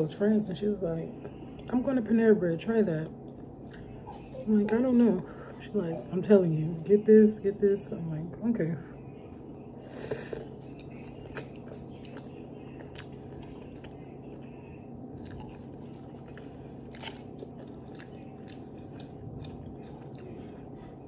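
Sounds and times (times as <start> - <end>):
close-up chewing: 9.9 - 14.6, 15.2 - 21.0.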